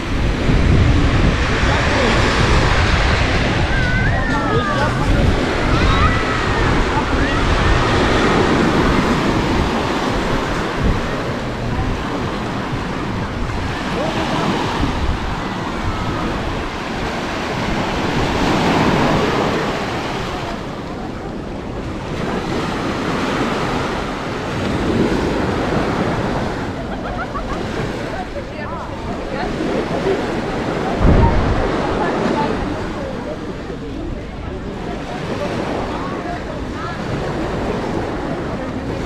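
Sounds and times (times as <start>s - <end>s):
sea waves breaking on beach: 0.0s - 39.0s
wind buffeting microphone: 0.0s - 39.0s.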